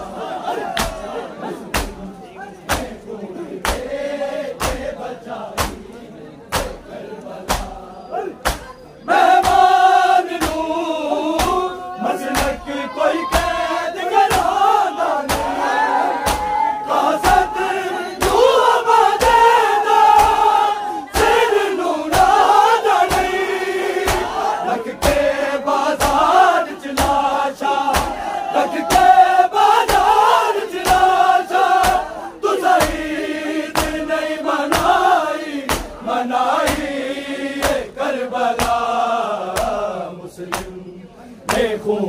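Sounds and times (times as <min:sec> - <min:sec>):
lead reciter chanting: 0:00.0 - 0:42.0
men chanting in chorus: 0:00.0 - 0:42.0
hand slaps on chest: 0:00.8 - 0:01.0, 0:01.7 - 0:02.0, 0:02.7 - 0:03.0, 0:03.6 - 0:03.9, 0:04.6 - 0:04.9, 0:05.6 - 0:05.8, 0:07.5 - 0:07.8, 0:08.4 - 0:08.7, 0:10.4 - 0:10.6, 0:14.3 - 0:14.5, 0:16.3 - 0:16.6, 0:24.1 - 0:24.3, 0:27.0 - 0:27.2, 0:27.9 - 0:28.2, 0:31.8 - 0:32.1, 0:32.8 - 0:33.0, 0:33.7 - 0:34.0, 0:34.7 - 0:35.0, 0:35.7 - 0:36.0, 0:36.6 - 0:36.9, 0:37.6 - 0:37.9, 0:38.6 - 0:38.9, 0:39.6 - 0:39.8.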